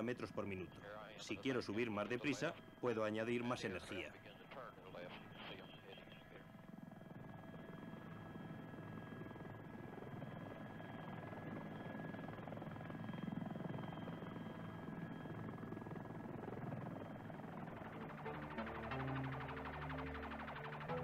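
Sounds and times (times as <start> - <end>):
helicopter rotor and engine drone: 0.0 - 21.0
high whine: 16.9 - 21.0.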